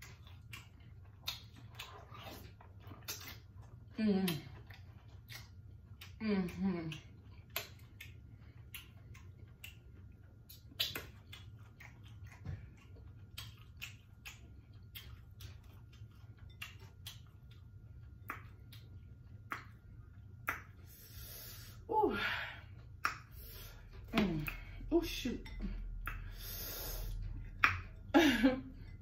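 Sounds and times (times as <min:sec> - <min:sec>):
chewing mouth sounds: 0:00.0 - 0:21.3
low steady hum: 0:00.0 - 0:29.0.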